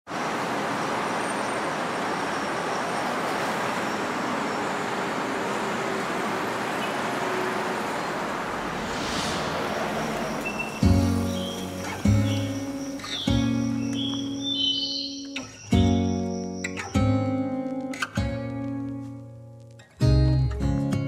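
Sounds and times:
distant city traffic: 0.1s - 16.9s.

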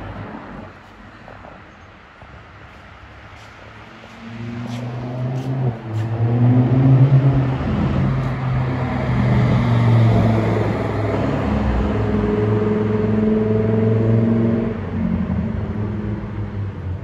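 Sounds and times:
sports car engine accelerating: 4.1s - 16.8s.

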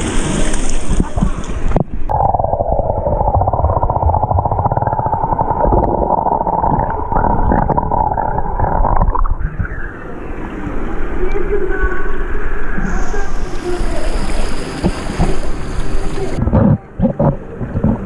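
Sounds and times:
pool water splashing: 0.0s - 11.3s
muffled underwater hum: 0.9s - 18.0s.

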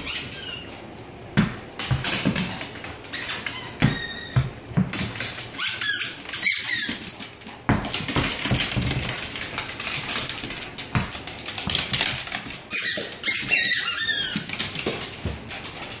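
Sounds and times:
squeaky ball squeaking: 0.0s - 0.7s, 3.1s - 4.6s, 5.5s - 7.1s, 12.7s - 14.5s.

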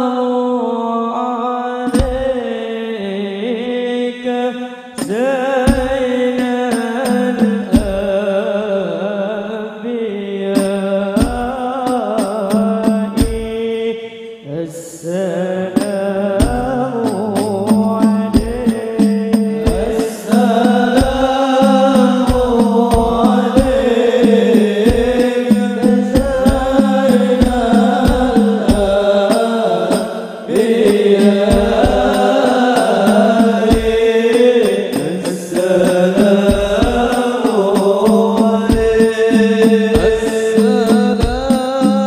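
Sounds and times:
chorus singing: 0.0s - 42.0s
lead voice singing: 0.0s - 42.0s
frame drums beating: 1.9s - 2.4s, 5.0s - 8.3s, 10.6s - 13.7s, 15.6s - 42.0s.

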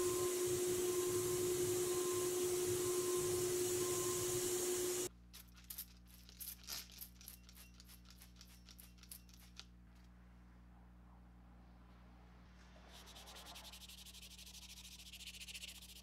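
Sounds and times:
spray hiss: 0.0s - 5.1s
low electrical hum: 0.0s - 16.0s.

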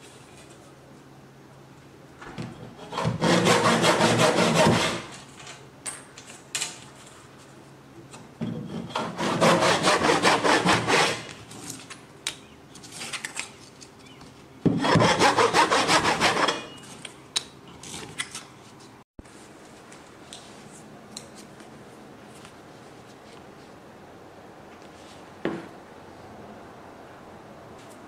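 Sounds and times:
hand saw cutting wood: 2.7s - 5.2s, 8.6s - 11.4s, 14.7s - 16.7s.

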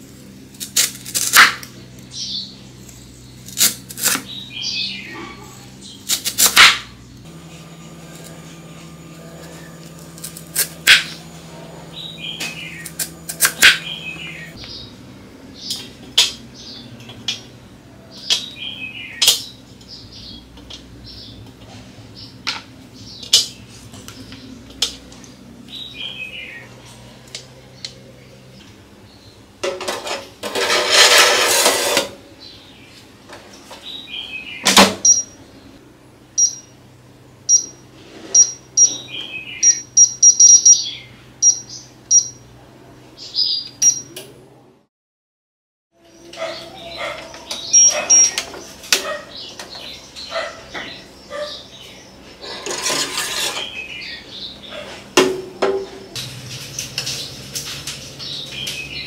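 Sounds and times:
scraping noise: 29.9s - 32.2s, 52.4s - 53.8s
touch panel beeps: 35.0s - 35.4s, 36.4s - 36.7s, 37.5s - 37.8s, 38.4s - 39.0s, 39.6s - 42.4s, 43.8s - 44.2s, 47.7s - 48.4s.

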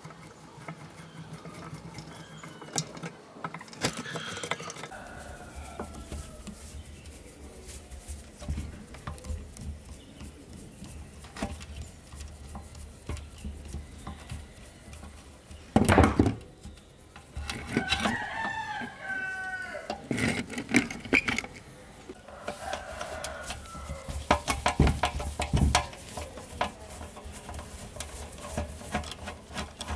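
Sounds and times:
rooster crowing: 3.9s - 6.6s, 17.7s - 20.0s, 22.2s - 24.3s
screwdriver clicks and scrapes: 17.2s - 19.1s, 19.8s - 26.0s.

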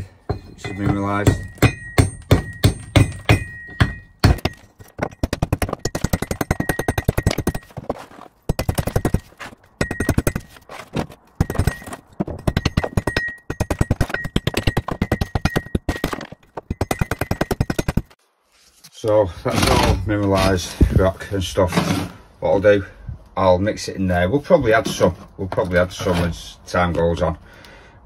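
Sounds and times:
rock being pounded: 0.7s - 10.5s, 11.4s - 18.1s.

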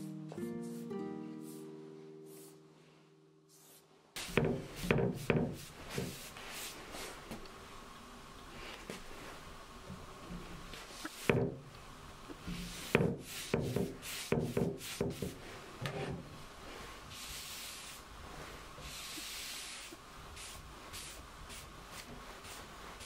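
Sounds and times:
paintbrush strokes on wood: 0.4s - 7.3s, 12.4s - 23.0s.

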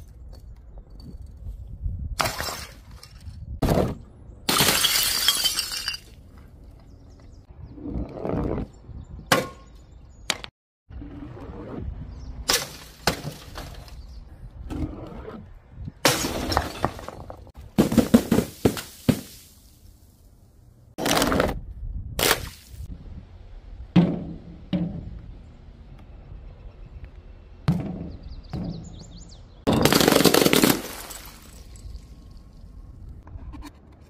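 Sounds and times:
glass cracking and shattering: 4.5s - 6.1s, 29.7s - 32.0s.

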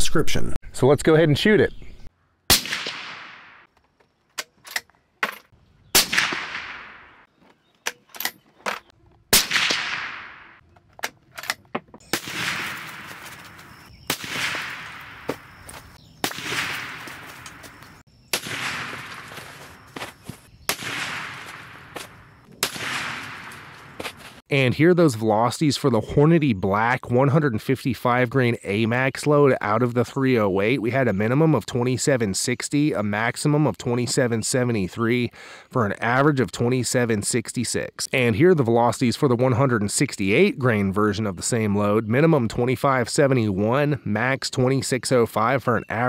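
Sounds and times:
suppressed rifle shots: 2.5s - 3.7s, 6.0s - 7.2s, 9.3s - 10.6s, 12.1s - 13.2s, 14.1s - 15.2s, 16.2s - 17.5s, 18.3s - 19.4s, 20.7s - 21.8s, 22.6s - 23.8s.

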